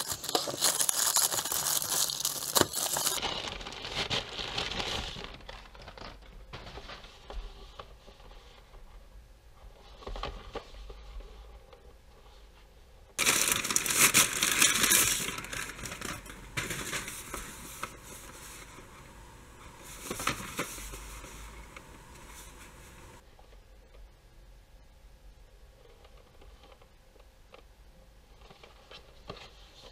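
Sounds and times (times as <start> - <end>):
packing paper crinkling: 0.0 - 7.1, 13.2 - 23.2.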